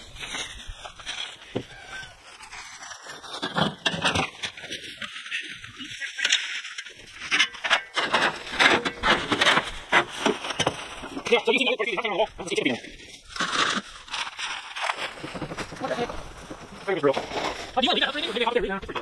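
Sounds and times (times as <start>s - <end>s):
plastic trash bags rustling: 8.0s - 19.0s.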